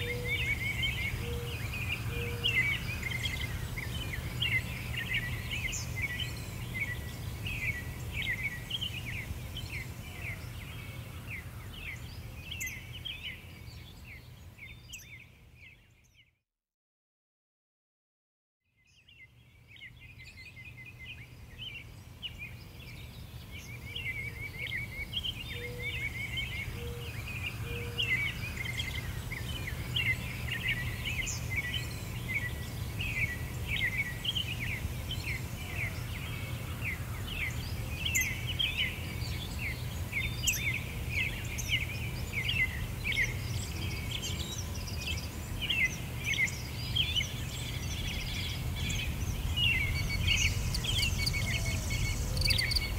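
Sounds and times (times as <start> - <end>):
small birds chirping: 0.0 - 16.4, 18.8 - 52.9
steady low rumble: 47.9 - 52.9.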